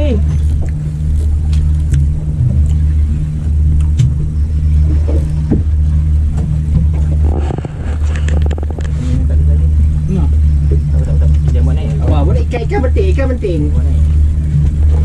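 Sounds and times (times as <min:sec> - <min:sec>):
boat engine humming: 0:00.0 - 0:15.0
rattle of clicks: 0:07.0 - 0:09.0.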